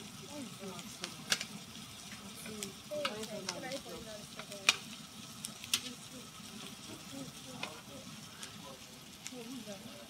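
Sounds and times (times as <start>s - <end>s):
food sizzling on grill pan: 0.0s - 10.0s
metal tongs clicking on pan: 0.8s - 4.9s, 5.6s - 6.0s.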